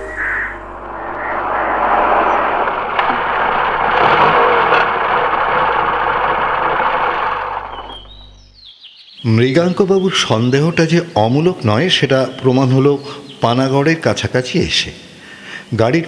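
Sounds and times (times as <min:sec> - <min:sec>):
car passing on road: 0:00.0 - 0:08.4
steady low hum: 0:00.0 - 0:08.6.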